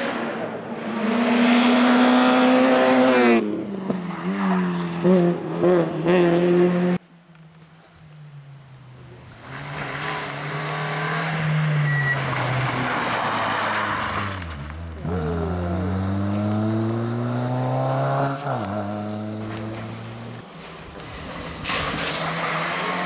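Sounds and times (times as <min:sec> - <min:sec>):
rally car engine revving: 0:00.0 - 0:07.0, 0:09.0 - 0:20.4, 0:21.0 - 0:23.0.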